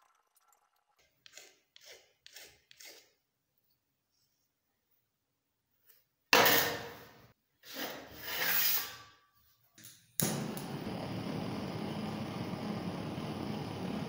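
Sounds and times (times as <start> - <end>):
gas torch hissing: 10.2 - 14.0.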